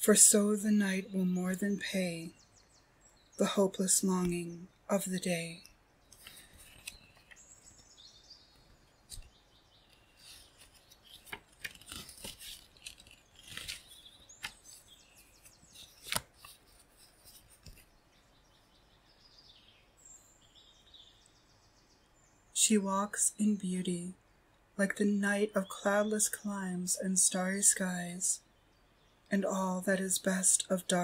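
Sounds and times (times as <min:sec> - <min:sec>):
faint birds chirping: 0:00.0 - 0:31.0
book pages rustling and turning: 0:06.1 - 0:07.5, 0:08.6 - 0:18.0.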